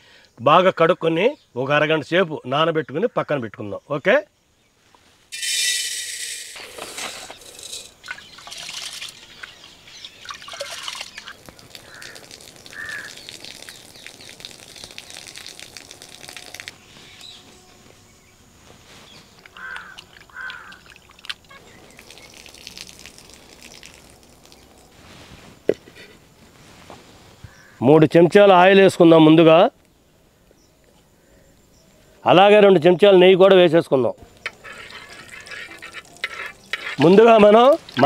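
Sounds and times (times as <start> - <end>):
water splashing and trickling: 6.6 - 17.6, 18.2 - 25.6, 34.3 - 38.0
crows cawing: 11.2 - 13.3, 19.5 - 21.1, 27.5 - 27.8.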